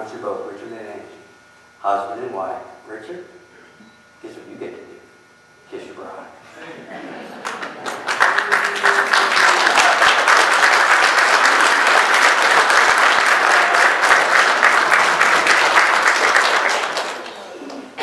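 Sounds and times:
congregation applauding: 0:07.4 - 0:18.0.

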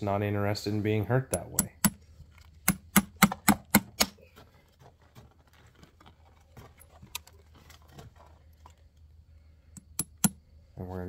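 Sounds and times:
hammer striking nail: 0:01.4 - 0:02.0, 0:02.6 - 0:04.2.

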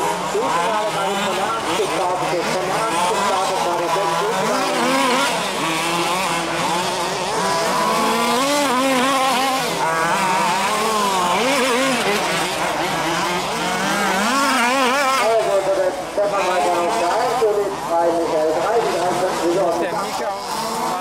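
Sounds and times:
small petrol engines revving: 0:00.0 - 0:21.0.

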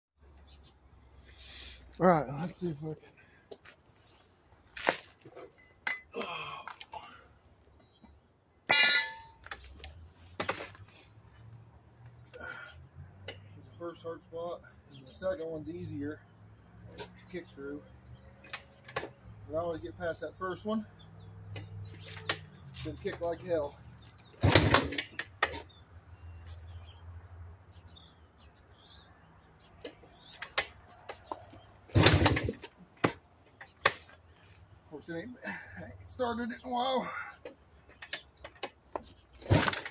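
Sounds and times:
loud ringing metal clang: 0:08.7 - 0:09.5
metal clatter: 0:08.7 - 0:09.6.

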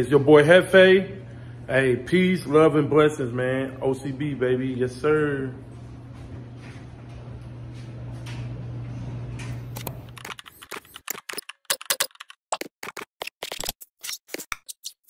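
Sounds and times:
keyboard typing clicks: 0:09.7 - 0:13.7.

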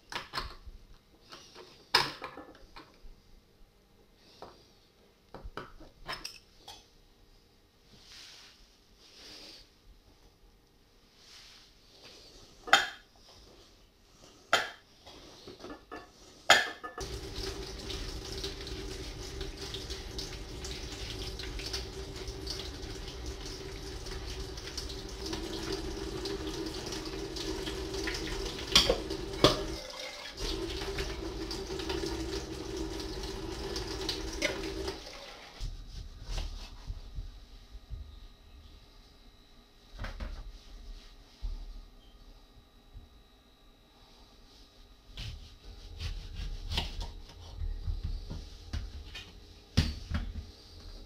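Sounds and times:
tap running into metal sink: 0:27.4 - 0:29.8.

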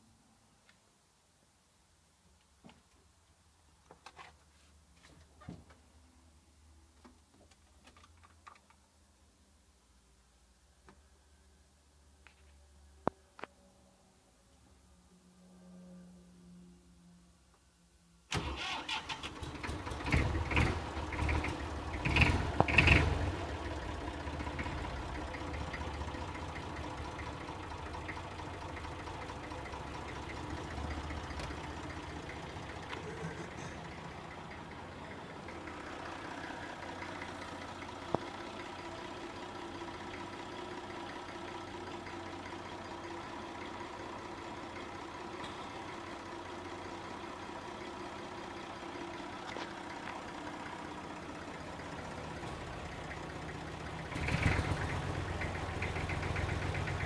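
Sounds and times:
diesel tractor engine idling: 0:18.3 - 0:57.0.

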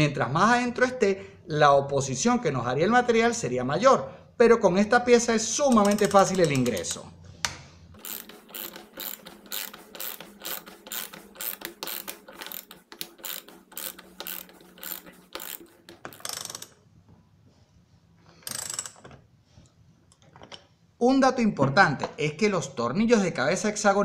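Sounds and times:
ratchet clicking: 0:05.7 - 0:07.1, 0:08.0 - 0:16.8, 0:18.4 - 0:19.0.

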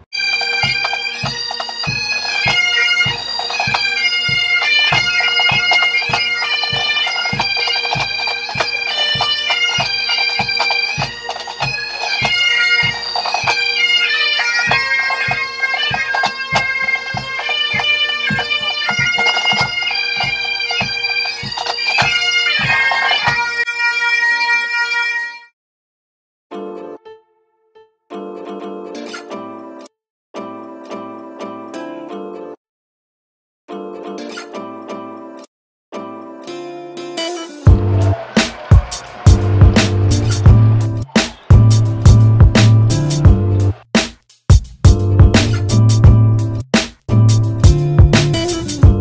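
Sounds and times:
snare drums: 0:00.0 - 0:23.5, 0:37.7 - 0:46.2, 0:46.8 - 0:49.0
bagpipes playing over drones: 0:00.2 - 0:25.5
bass drum beating: 0:37.7 - 0:49.0.

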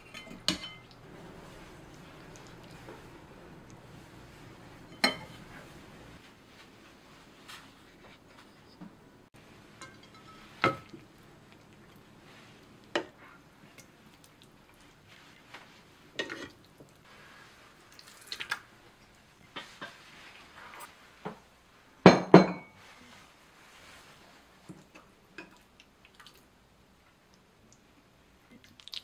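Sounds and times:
utensils clinking against dishes: 0:00.0 - 0:01.0, 0:04.8 - 0:05.6, 0:09.8 - 0:10.9.

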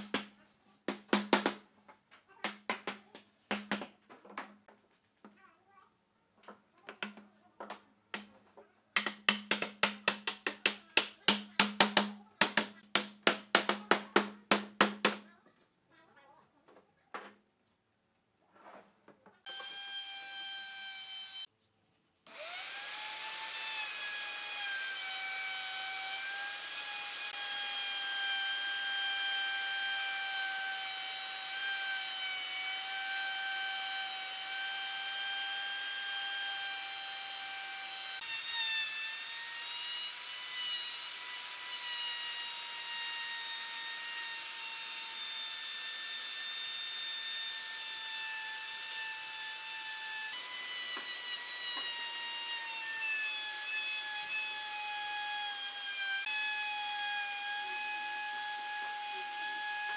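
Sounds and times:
router motor whining: 0:19.5 - 0:21.5, 0:22.3 - 0:59.9.

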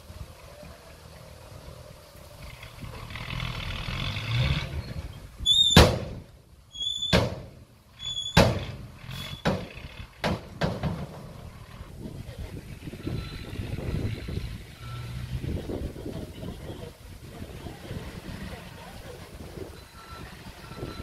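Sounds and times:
heavy machinery rumble: 0:00.0 - 0:21.0
short high squeal: 0:04.8 - 0:05.9, 0:06.7 - 0:07.2, 0:08.0 - 0:08.4, 0:09.1 - 0:09.5
loud metallic bangs: 0:05.5 - 0:11.4.

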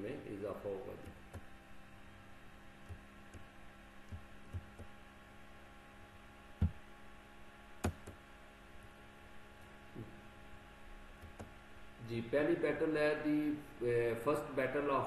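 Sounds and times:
low electrical hum: 0:00.0 - 0:15.0
faint clicks and knocks: 0:02.8 - 0:04.9, 0:11.2 - 0:11.5.

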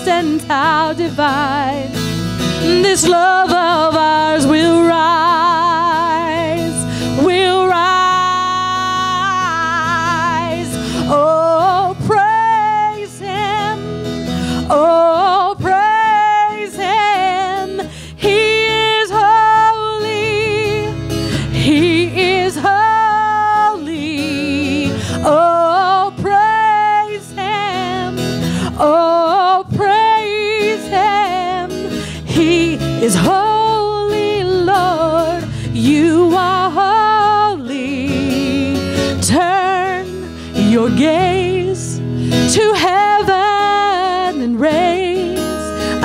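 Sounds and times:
strummed acoustic guitar: 0:00.0 - 0:46.0
woman singing: 0:00.0 - 0:46.0
electric bass: 0:17.2 - 0:30.6.

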